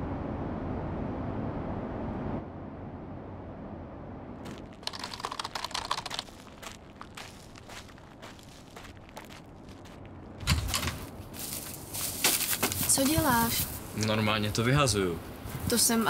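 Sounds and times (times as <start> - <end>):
low rumble: 0.0 - 5.4.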